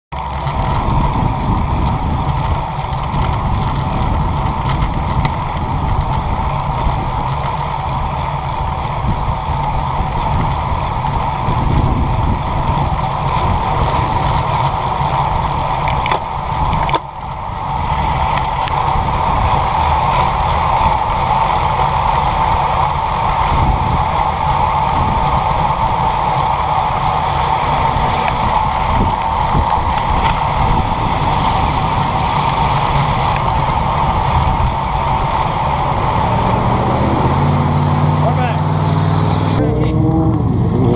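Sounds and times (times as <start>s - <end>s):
bike tyres on pavement: 0.2s - 39.6s
wind rushing: 11.2s - 21.1s, 23.5s - 38.2s.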